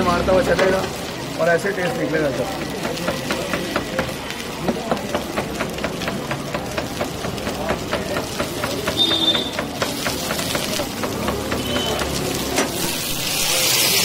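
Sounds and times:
water boiling hard: 0.0 - 14.0.

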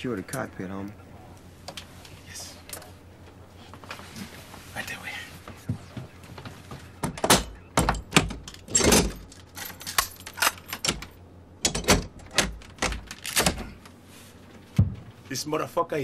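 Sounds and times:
metal door locks clacking: 7.0 - 13.8.

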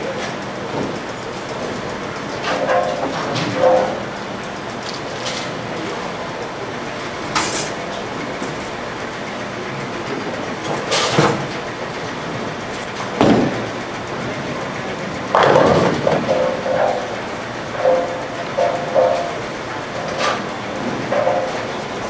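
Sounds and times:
bowling balls rolling: 15.3 - 17.1.

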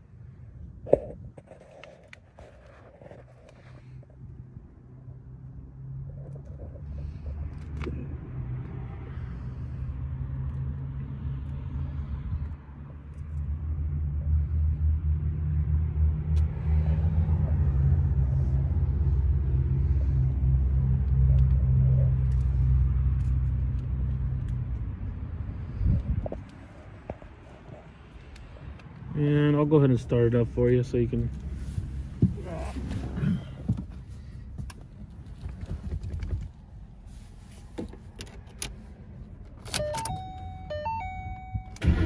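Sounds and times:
vehicle engine rumble: 0.0 - 42.0.

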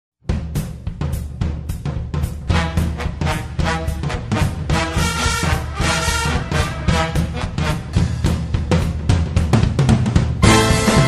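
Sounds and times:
drum beat: 0.2 - 11.0
brass: 2.2 - 8.8, 10.4 - 11.0.

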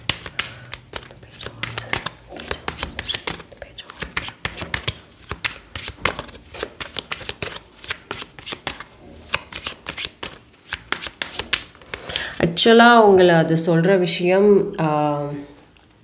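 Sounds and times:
cards being shuffled: 0.0 - 12.4.

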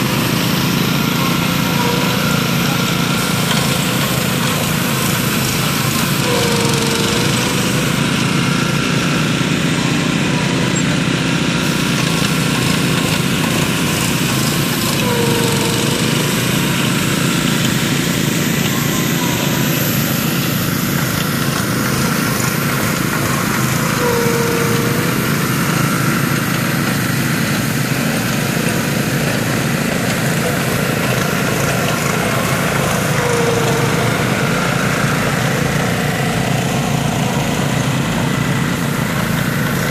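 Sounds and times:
small gasoline engines running: 0.0 - 39.9
short squeal: 6.2 - 8.8, 15.0 - 20.4.

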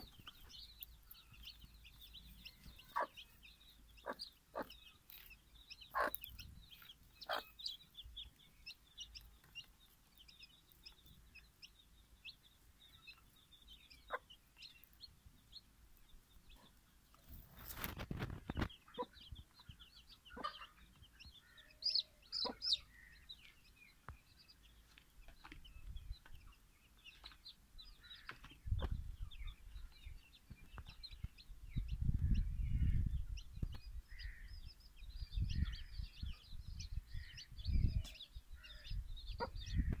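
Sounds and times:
hen clucking: 0.0 - 8.3, 18.6 - 21.0, 21.8 - 23.1
chicks peeping: 0.0 - 40.0.

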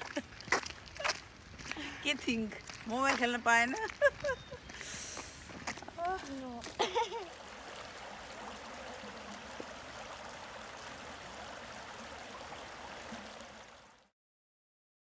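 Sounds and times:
stream water rushing: 3.8 - 14.1.

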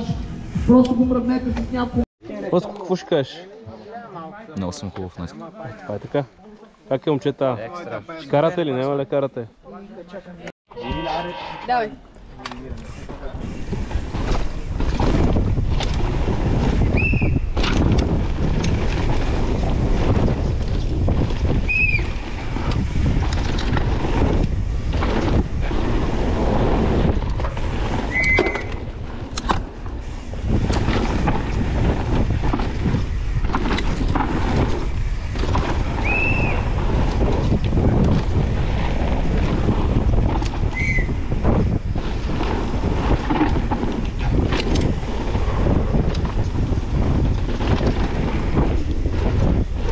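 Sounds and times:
mountain bike rattling over dirt: 12.8 - 49.9
wind buffeting microphone: 12.8 - 49.9.

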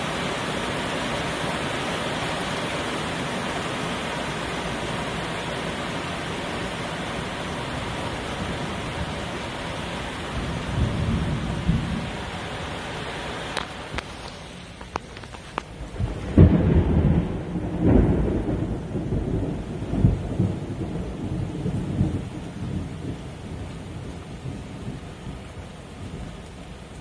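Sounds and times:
heavy rain falling: 0.0 - 27.0
rolling thunder rumble: 7.3 - 12.3, 15.8 - 26.4.

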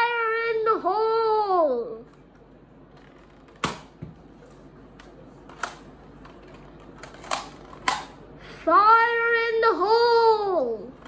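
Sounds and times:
sharp plastic clack: 5.0 - 8.2.

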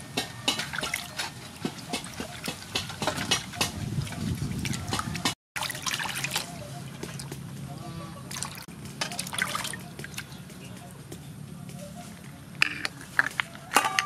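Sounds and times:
water splashing in a metal basin: 0.0 - 7.4, 8.2 - 10.4.

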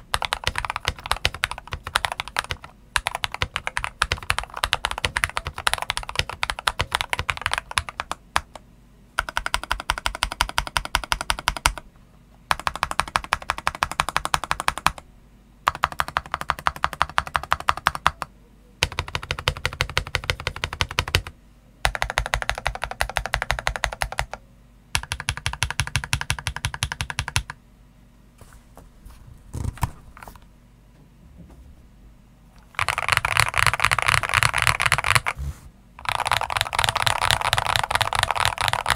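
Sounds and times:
typing on mechanical keyboard: 0.0 - 8.6, 9.2 - 11.8, 12.5 - 15.0, 15.7 - 24.4, 25.0 - 27.6, 32.7 - 35.4, 36.0 - 38.9.

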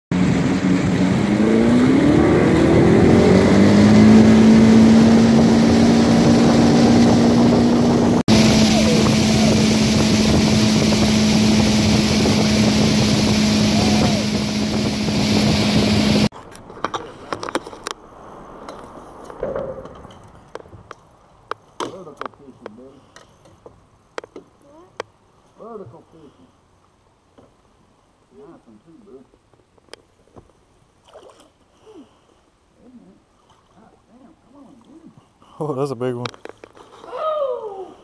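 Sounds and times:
motorboat engine running: 0.1 - 16.3
water rushing: 0.1 - 16.3
heavy wind: 0.1 - 22.8.

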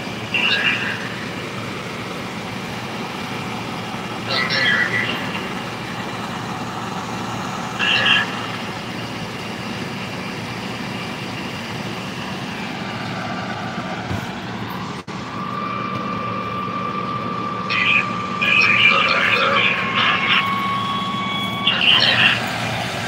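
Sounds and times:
truck engine idling: 0.0 - 23.0
steady tone: 15.0 - 23.0.

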